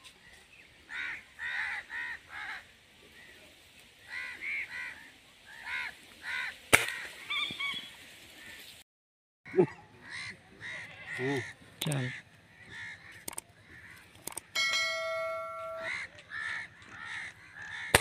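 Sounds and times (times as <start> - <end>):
crows cawing: 0.9 - 2.7, 4.1 - 7.5, 9.6 - 14.6, 15.2 - 18.0.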